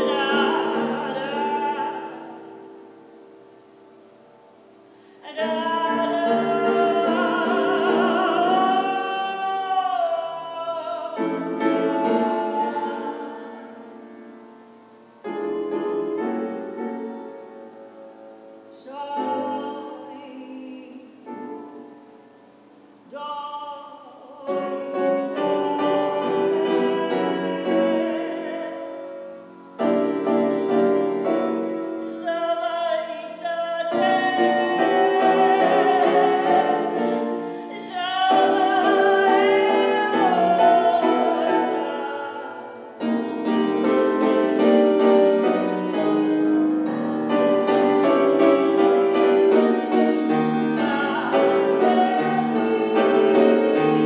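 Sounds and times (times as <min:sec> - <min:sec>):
woman singing: 0:00.0 - 0:02.7, 0:05.2 - 0:14.2, 0:18.7 - 0:21.6, 0:23.0 - 0:30.6, 0:32.0 - 0:48.2, 0:49.3 - 0:54.0
grand piano accompaniment: 0:00.0 - 0:54.0.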